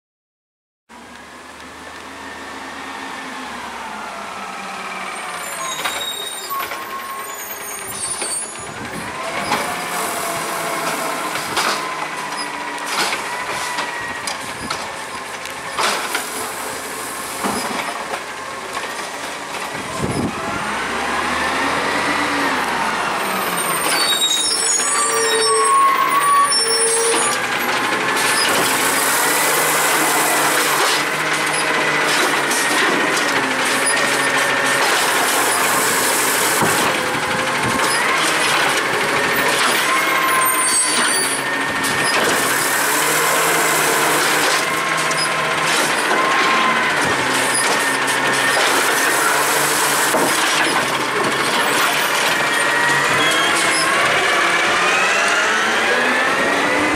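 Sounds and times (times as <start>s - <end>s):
garbage truck engine running: 1.0s - 56.9s
hydraulic arm dumping a cart: 4.8s - 56.9s.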